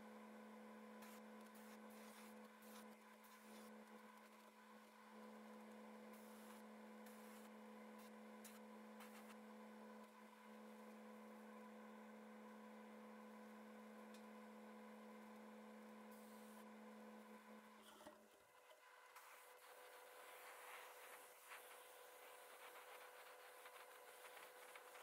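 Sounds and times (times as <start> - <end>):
faint bursts of hiss: 19.1 - 25.0.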